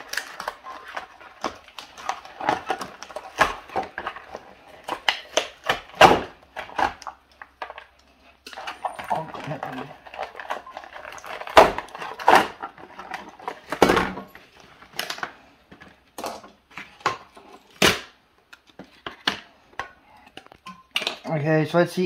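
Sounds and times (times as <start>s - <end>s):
cardboard scraping crackle: 0.0s - 5.6s, 8.3s - 15.1s
cardboard crackling and knocking: 0.0s - 7.8s, 8.6s - 15.0s.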